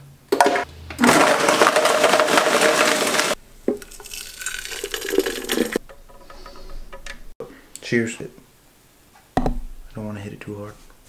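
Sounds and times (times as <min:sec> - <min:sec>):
blender running: 0:00.4 - 0:03.4
shake pouring into glass jar: 0:01.0 - 0:05.8.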